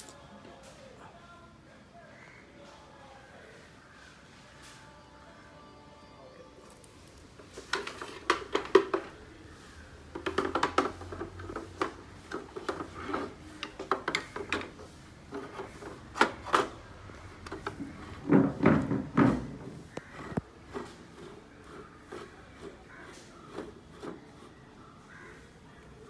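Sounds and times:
hard plastic clattering and clicking: 0:07.4 - 0:09.2, 0:10.1 - 0:21.0.

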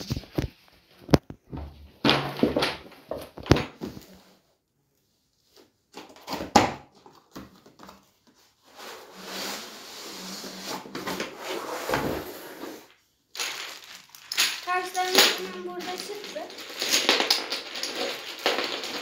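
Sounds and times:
cardboard scraping: 0:08.5 - 0:12.9.

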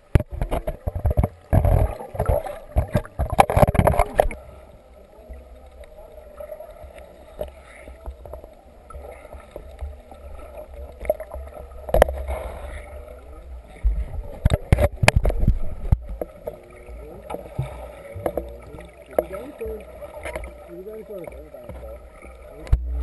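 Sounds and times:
sharp clicks and knocks: 0:00.0 - 0:04.4
muffled underwater hum: 0:00.0 - 0:23.0
water sloshing and splashing: 0:00.0 - 0:23.0
low rumble: 0:22.6 - 0:23.0.

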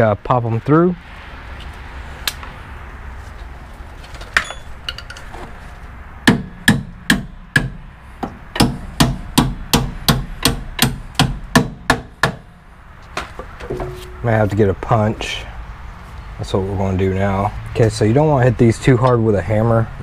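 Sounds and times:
hammer striking metal bolt: 0:13.2 - 0:14.2.

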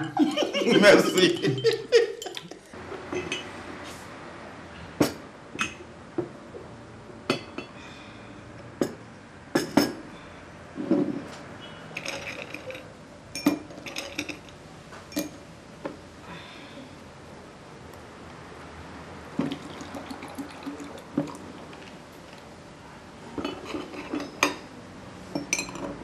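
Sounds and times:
crockery clinking: 0:00.0 - 0:03.5, 0:12.0 - 0:15.4, 0:23.4 - 0:24.7, 0:25.4 - 0:26.0.

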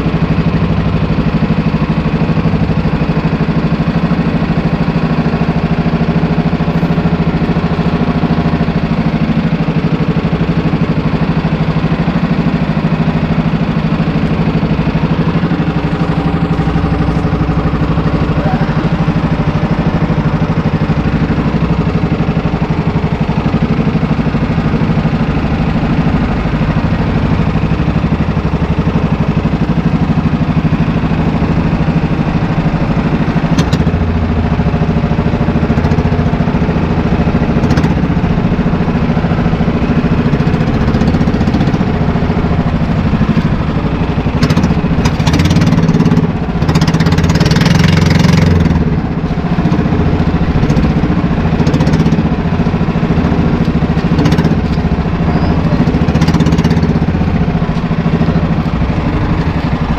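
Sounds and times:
boat engine droning: 0:00.0 - 0:59.9
water splashing along hull: 0:00.0 - 0:59.9.

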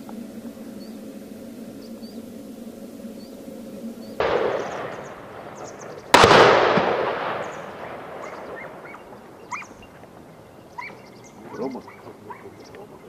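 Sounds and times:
echoing gunshots: 0:04.2 - 0:09.6.

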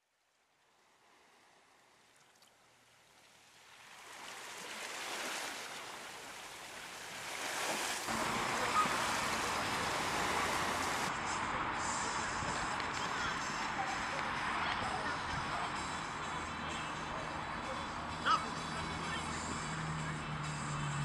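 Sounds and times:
ocean surf: 0:03.6 - 0:20.4.

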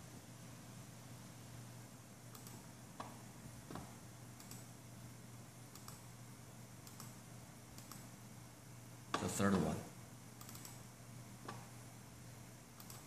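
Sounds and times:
low steady hum: 0:00.0 - 0:13.0
computer mouse clicks: 0:02.3 - 0:04.7, 0:05.7 - 0:06.0, 0:06.8 - 0:08.1, 0:10.4 - 0:10.8, 0:12.8 - 0:13.0.

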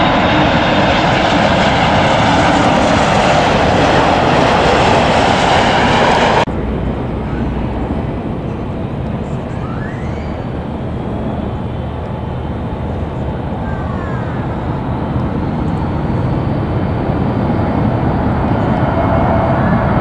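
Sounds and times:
jet airliner engines: 0:00.0 - 0:20.0.

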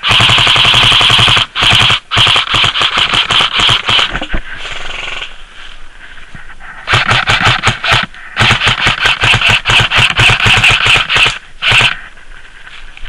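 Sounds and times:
airsoft rifle firing bursts: 0:00.0 - 0:04.3, 0:06.9 - 0:12.0.

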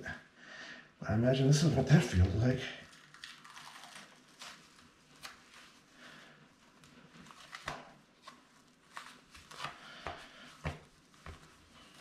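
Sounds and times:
dressing peeled off skin: 0:02.8 - 0:12.0.

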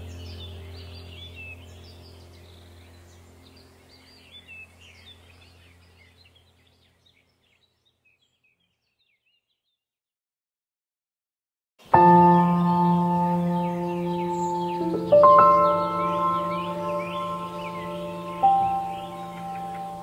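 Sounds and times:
steady low drone: 0:00.0 - 0:06.2, 0:12.0 - 0:20.0
birds chirping: 0:00.0 - 0:09.8, 0:11.8 - 0:20.0.

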